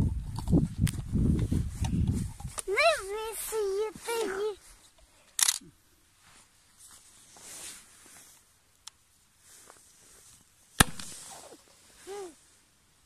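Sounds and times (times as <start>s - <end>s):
faint rustling: 6.2s - 8.5s
loud sharp snap: 10.8s - 11.2s.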